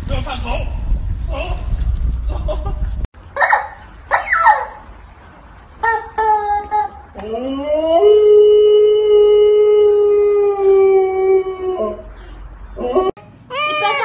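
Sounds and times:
dog howling: 0:07.2 - 0:12.1.

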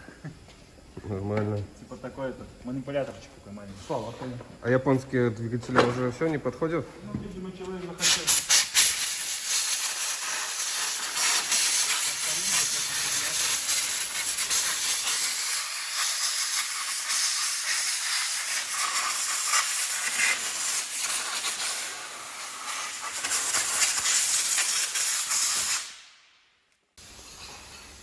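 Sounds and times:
compressed air hissing from hose: 0:07.9 - 0:26.2, 0:27.0 - 0:28.0.

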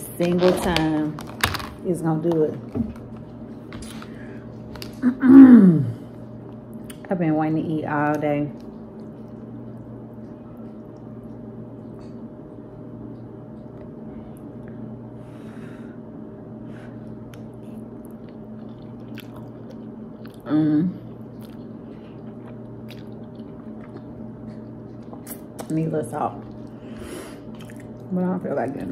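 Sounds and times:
steady low hum: 0:00.0 - 0:28.9
person chewing noodles: 0:08.6 - 0:12.3, 0:17.0 - 0:25.7, 0:26.4 - 0:28.1.

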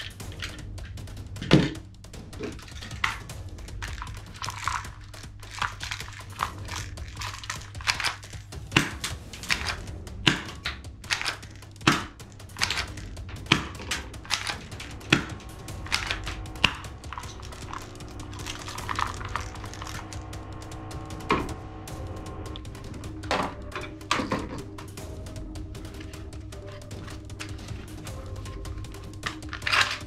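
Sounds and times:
faint background music: 0:00.0 - 0:30.0.

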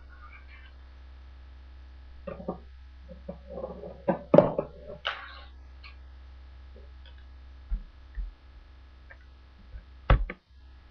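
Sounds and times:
fingerboard scraping roll: 0:02.3 - 0:05.0
dull thumps: 0:09.6 - 0:10.4.

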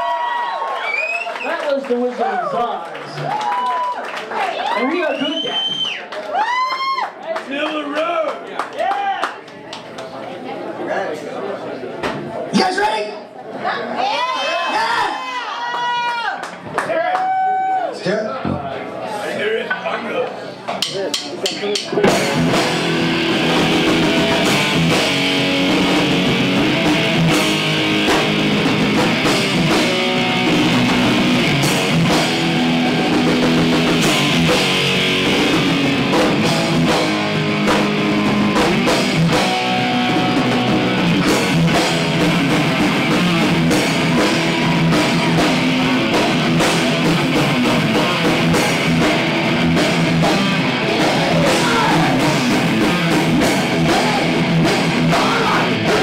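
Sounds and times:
drum kit: 0:20.8 - 0:56.0
bass guitar: 0:21.8 - 0:56.0
electric guitars: 0:21.9 - 0:56.0.

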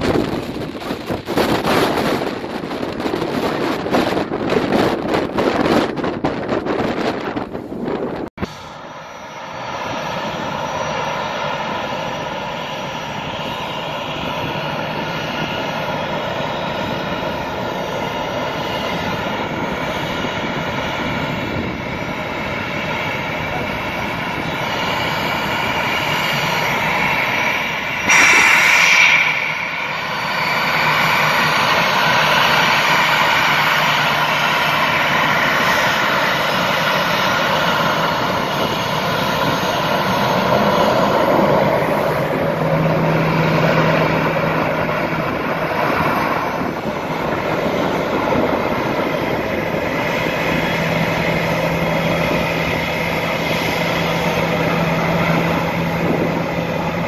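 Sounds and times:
jet engines whining: 0:00.0 - 0:57.0
sudden loud burst of noise: 0:08.4 - 0:10.6, 0:25.8 - 0:34.7.

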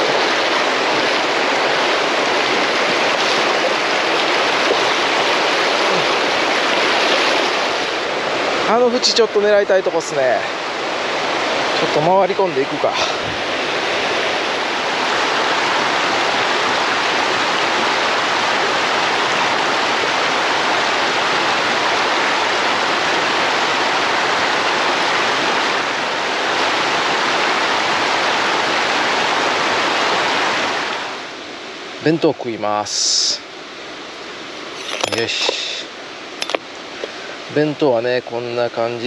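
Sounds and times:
stream water rushing: 0:00.0 - 0:39.0.

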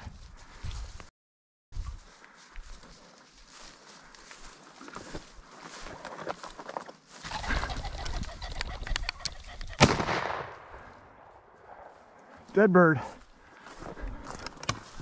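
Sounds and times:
pheasant cackling: 0:07.2 - 0:09.8
pheasant wings beating: 0:07.2 - 0:10.0
shotgun blast: 0:09.8 - 0:10.7.

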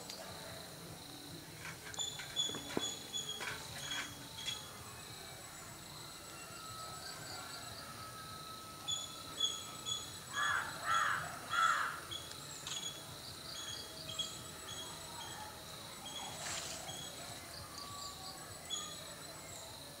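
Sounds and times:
faint high whine: 0:00.0 - 0:20.0
crows cawing: 0:10.3 - 0:12.1.

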